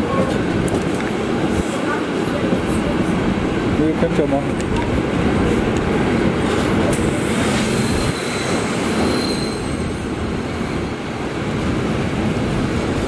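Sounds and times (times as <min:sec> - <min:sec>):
rushing noise: 0:00.0 - 0:13.0
train wheels rumbling on rails: 0:00.0 - 0:13.0
thin high squeal: 0:07.6 - 0:10.2.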